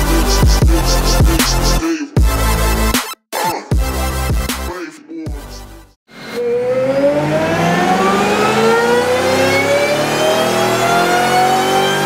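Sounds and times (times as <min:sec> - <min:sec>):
supercharged engine at full throttle: 0:06.1 - 0:12.0.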